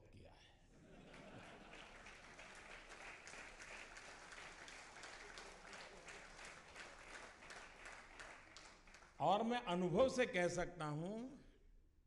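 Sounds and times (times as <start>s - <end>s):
faint audience applause: 0.8s - 9.2s.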